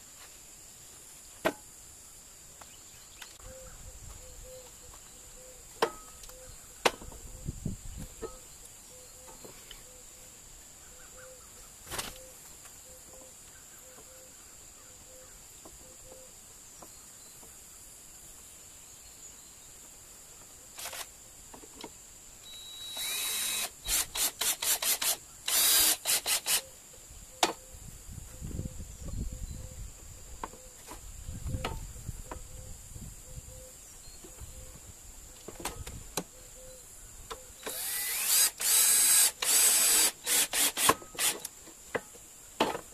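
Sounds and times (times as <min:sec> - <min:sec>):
insects chirping: 0:00.0 - 0:42.9
cordless drill driving into wood: 0:20.8 - 0:21.1, 0:22.8 - 0:26.7, 0:37.6 - 0:41.5.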